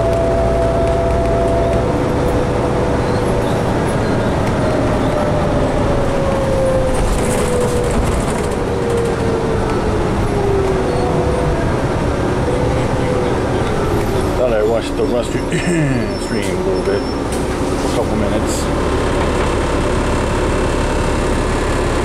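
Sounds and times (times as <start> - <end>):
driveline whine: 0.0 - 17.3
bus engine running: 0.0 - 22.0
road and cabin noise: 0.0 - 22.0.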